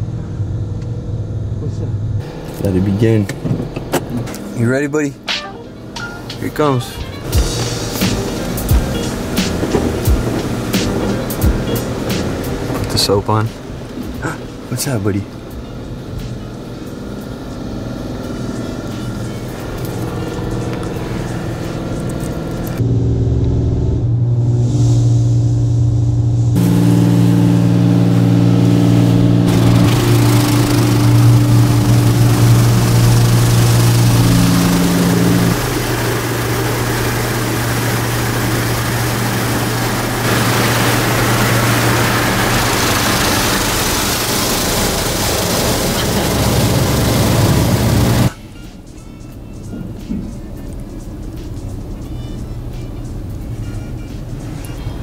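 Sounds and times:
car wash machinery hum: 0.0s - 55.0s
water spraying on windows: 7.4s - 13.9s, 29.5s - 48.3s.

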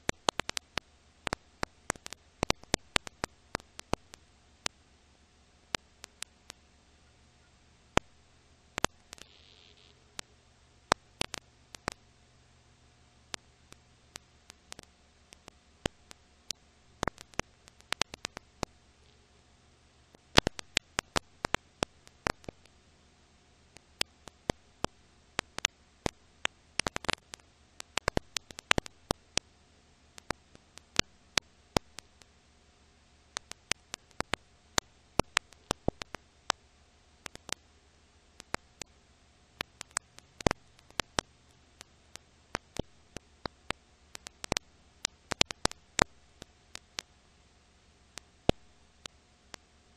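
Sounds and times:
film surface crackle: 0.0s - 4.8s, 5.6s - 12.2s, 13.2s - 19.4s, 20.1s - 22.9s, 23.5s - 29.5s, 30.1s - 32.4s, 33.2s - 36.6s, 37.2s - 37.7s, 38.3s - 49.8s
faint steady hiss and hum: 0.0s - 49.9s.

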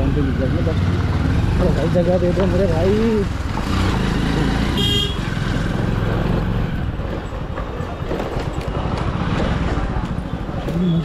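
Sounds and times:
motorcycle horn beep: 4.8s - 5.2s.

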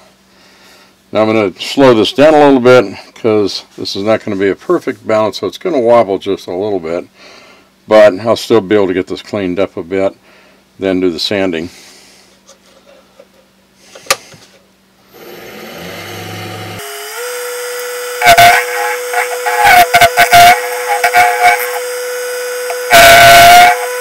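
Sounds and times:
wood lathe whirring: 15.1s - 24.0s.

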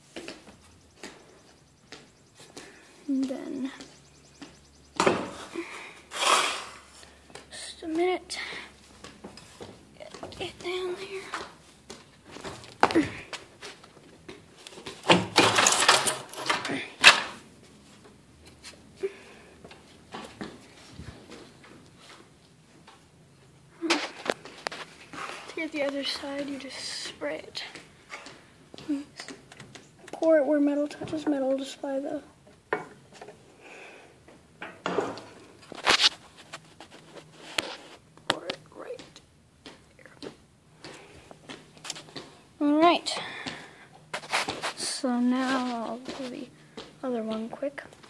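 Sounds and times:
small clicks knocks and rustles: 23.9s - 31.6s.

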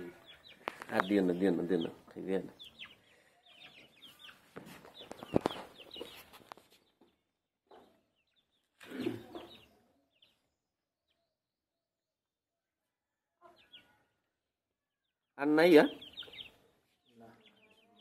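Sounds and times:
hens clucking: 0.0s - 6.8s
chicks peeping: 0.0s - 11.3s, 13.4s - 14.3s, 15.0s - 18.0s.

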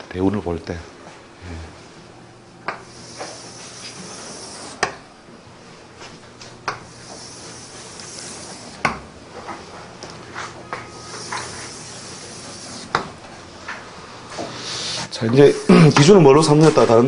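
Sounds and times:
chalk tapping on blackboard: 2.7s - 5.0s, 6.7s - 9.0s, 10.7s - 13.2s
chalk scraping on blackboard: 2.8s - 5.0s, 6.7s - 9.0s, 10.9s - 13.1s, 14.4s - 15.2s.

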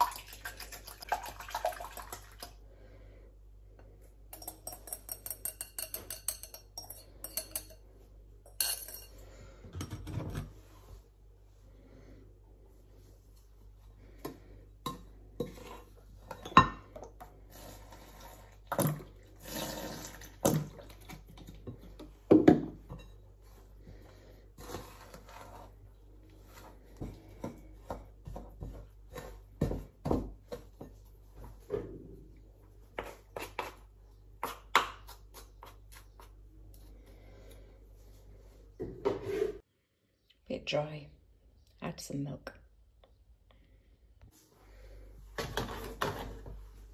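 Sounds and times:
spoon scraping dry mix in bowl: 14.9s - 16.6s, 17.2s - 20.3s, 24.6s - 29.6s.

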